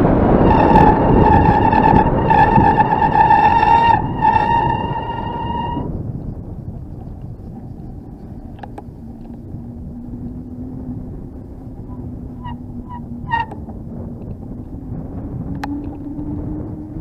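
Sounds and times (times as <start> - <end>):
low hum rising in pitch: 0.0 - 17.0
wind and tyre noise: 0.0 - 17.0
short squeaks: 0.5 - 5.8.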